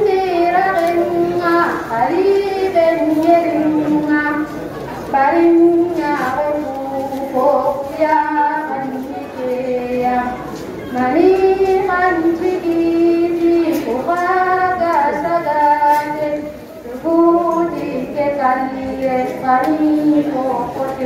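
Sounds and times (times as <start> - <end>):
woman chanting unaccompanied: 0.0 - 21.0.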